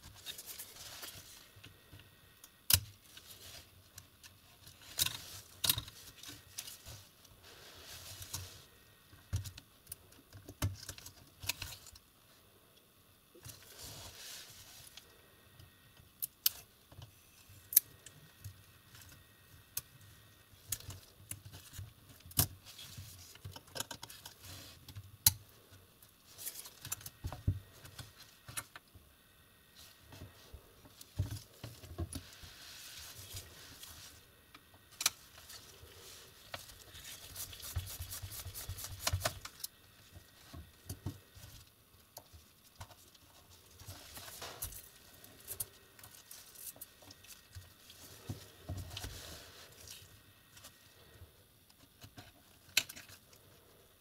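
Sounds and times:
gloved hands rustling: 29.8 - 51.1.

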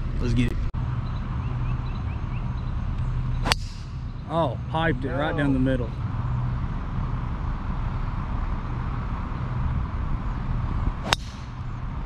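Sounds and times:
low engine drone: 0.0 - 12.0
outdoor background noise: 0.0 - 12.0.

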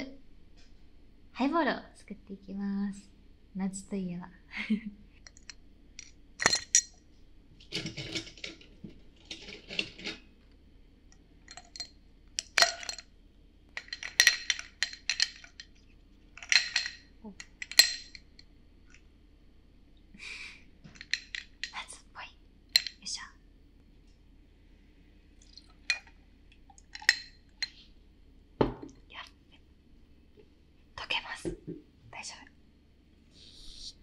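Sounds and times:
ice clinking on glass: 11.5 - 13.1, 13.8 - 15.7, 16.4 - 18.2, 26.8 - 27.8.

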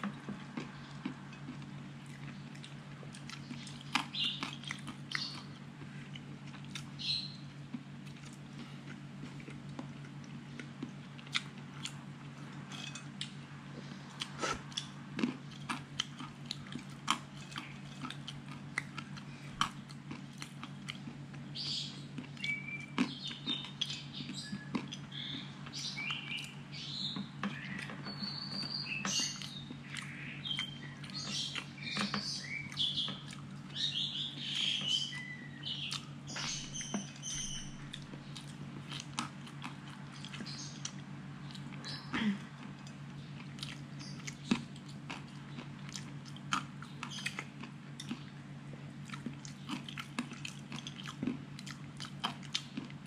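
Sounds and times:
close-up chewing and crunching: 0.0 - 53.0
steady low hum: 0.0 - 53.0
birds chirping: 3.3 - 5.6, 6.9 - 7.6, 21.4 - 39.2, 40.1 - 44.8, 46.8 - 48.4.

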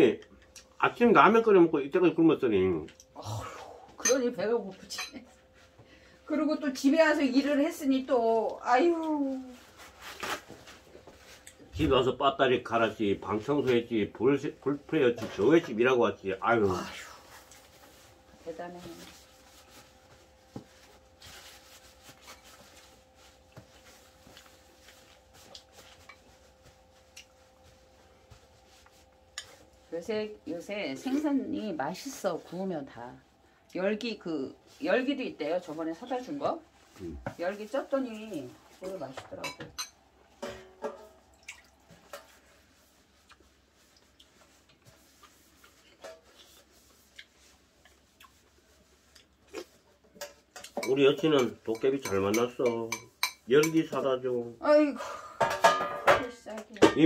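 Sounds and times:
steady faint hum: 0.0 - 51.7
soft rustles: 4.7 - 11.8, 16.7 - 39.3
tableware tapping on dishes: 39.3 - 41.2, 50.2 - 54.0, 55.4 - 57.0
chopsticks and spoons clicking on bowls: 49.2 - 54.0.

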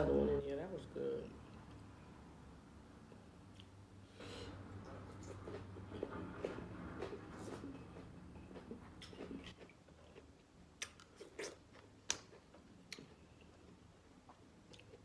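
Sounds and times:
mouth clicks and smacks: 8.4 - 13.5
person biting and chewing: 8.6 - 13.3.

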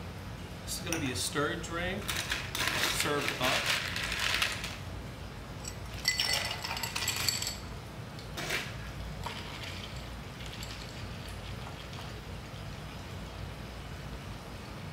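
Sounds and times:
spoon stirring ice: 2.1 - 4.7, 5.9 - 7.6
ice cubes clinking into glass: 5.9 - 7.6.

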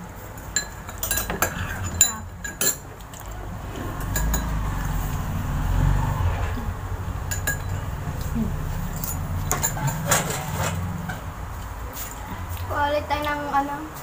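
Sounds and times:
metal spoon clinking against bowl: 0.5 - 3.4, 4.0 - 4.6
low rumble: 1.4 - 12.8.

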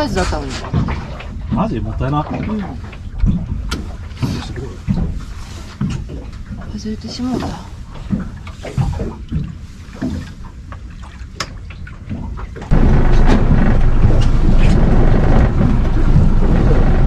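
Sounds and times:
boat engine and wind rumble: 0.0 - 17.0
knocks and clicks: 12.6 - 17.0.

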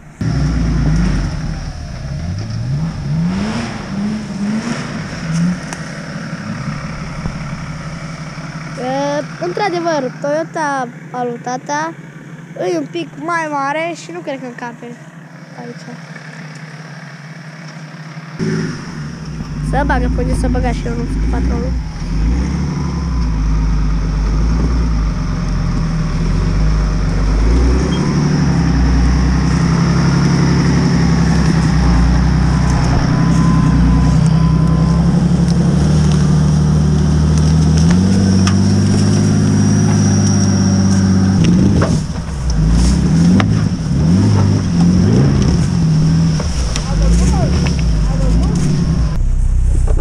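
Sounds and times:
truck engine under load: 0.0 - 50.0.

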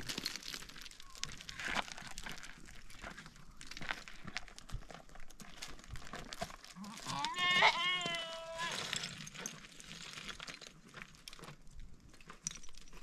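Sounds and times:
crunching and rustling clicks: 0.0 - 13.0
sheep bleating: 6.8 - 8.8.

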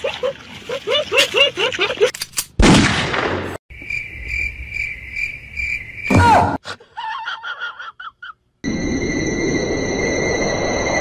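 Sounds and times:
crickets chirping: 3.7 - 6.1, 8.6 - 11.0.

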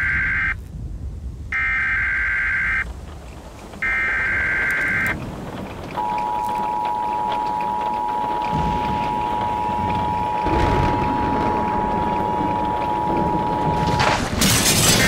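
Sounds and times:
low rumble: 0.0 - 15.0
screeching data bursts: 3.8 - 5.2, 6.0 - 15.0
two-tone attention signal: 3.8 - 5.2, 6.0 - 14.1.

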